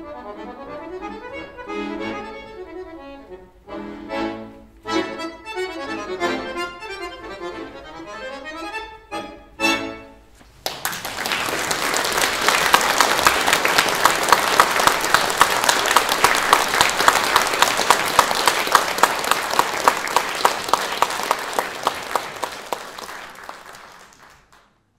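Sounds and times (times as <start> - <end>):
audience clapping in unison: 10.5 - 24.9.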